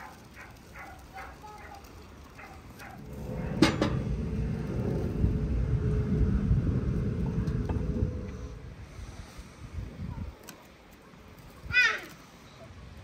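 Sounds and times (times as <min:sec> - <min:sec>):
low rumble: 0:02.6 - 0:10.3.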